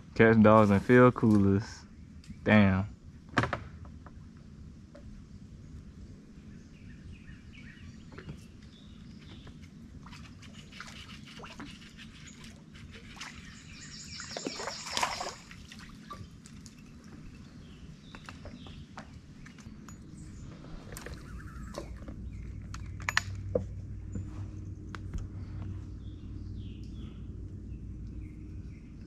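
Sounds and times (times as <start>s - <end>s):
water lapping against boat: 9.3s - 17.4s
water drips: 10.8s - 17.2s
water splash: 14.1s - 16.6s.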